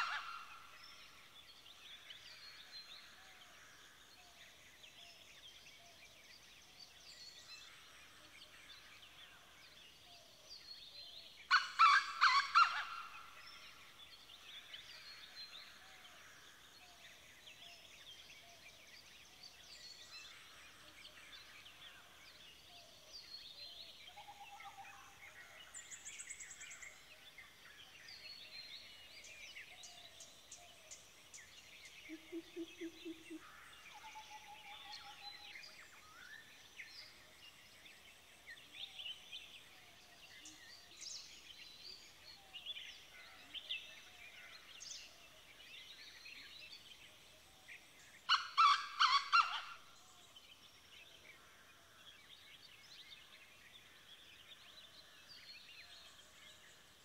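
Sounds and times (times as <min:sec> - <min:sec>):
wild birds singing and calling: 0:00.0 - 0:57.0.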